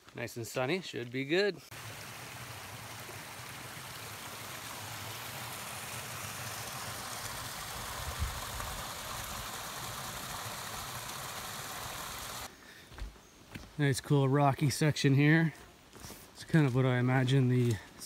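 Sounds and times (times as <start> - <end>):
stream splashing over rocks: 1.7 - 12.5.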